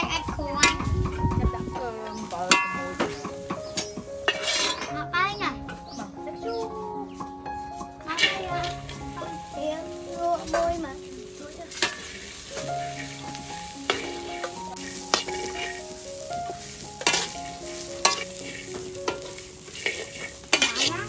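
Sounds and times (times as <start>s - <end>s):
corn sizzling in a wok: 0.0s - 4.9s, 5.8s - 21.0s
spatula scraping a pan: 2.3s - 5.0s, 7.7s - 9.4s, 11.6s - 21.0s.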